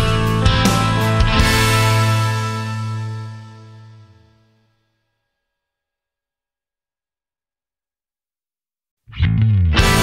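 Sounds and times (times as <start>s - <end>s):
rock music with guitar and drums: 0.0s - 4.1s, 9.1s - 10.0s.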